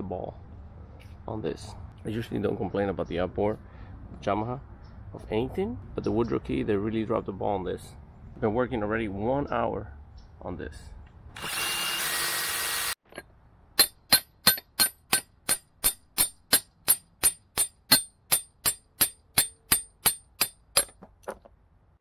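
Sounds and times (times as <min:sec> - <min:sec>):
hammer striking steel chisel: 0:13.1 - 0:21.1.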